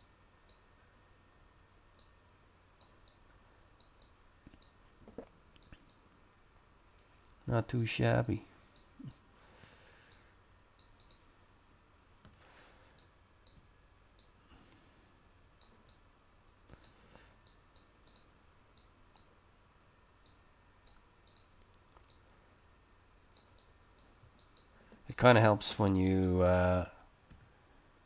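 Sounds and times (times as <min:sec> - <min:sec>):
computer mouse clicking: 0:00.0 - 0:01.1, 0:02.0 - 0:02.2, 0:02.8 - 0:06.0, 0:10.8 - 0:11.3, 0:12.2 - 0:14.4, 0:15.6 - 0:16.0, 0:16.7 - 0:19.3, 0:20.2 - 0:22.2, 0:23.3 - 0:24.8, 0:27.3 - 0:27.5.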